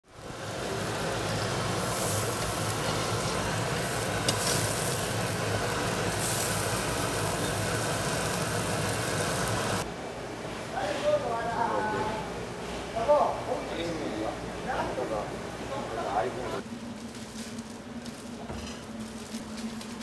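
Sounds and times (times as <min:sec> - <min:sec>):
meat sizzling on grill: 0:00.0 - 0:09.8.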